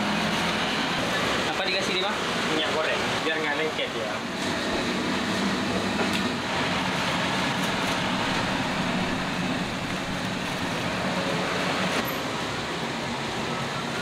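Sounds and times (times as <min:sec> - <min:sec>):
mechanical running noise: 0:04.3 - 0:12.2
low hum: 0:06.9 - 0:11.2.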